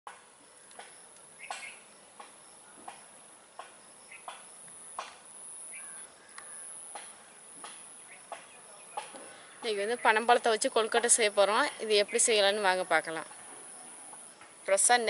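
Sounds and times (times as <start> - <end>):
short sharp insect chirps: 0.6 - 8.4.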